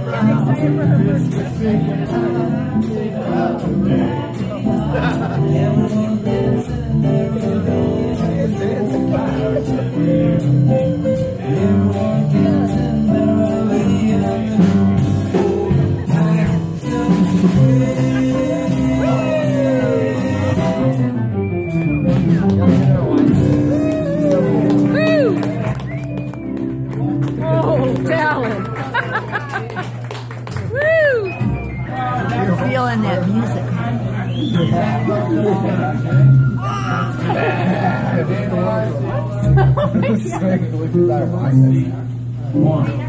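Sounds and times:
person singing: 0.0s - 21.3s, 34.9s - 38.2s
acoustic guitar strumming: 33.7s - 39.6s.

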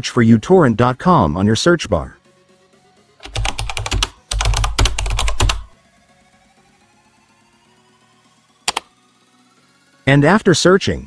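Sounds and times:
rapid keyboard typing: 3.2s - 5.8s, 8.7s - 8.9s
quick clicks: 8.7s - 8.9s.

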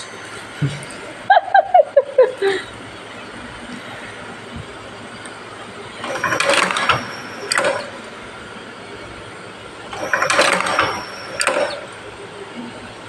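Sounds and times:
dumpling machine clattering: 6.0s - 8.0s, 9.8s - 12.1s.

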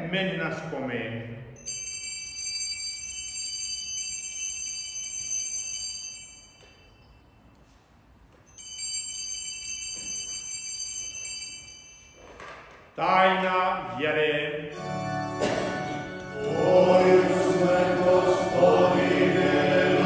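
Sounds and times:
altar bells ringing: 1.6s - 7.6s, 8.5s - 12.6s, 14.8s - 18.7s.

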